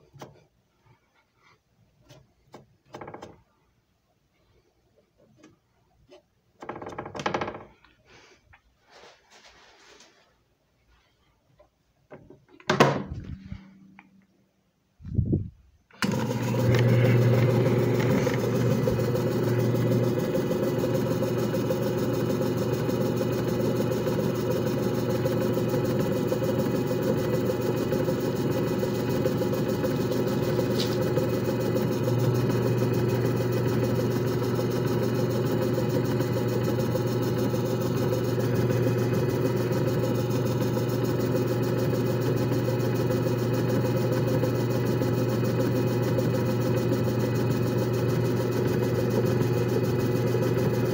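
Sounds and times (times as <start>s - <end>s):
machine motor hum: 16.0s - 50.9s.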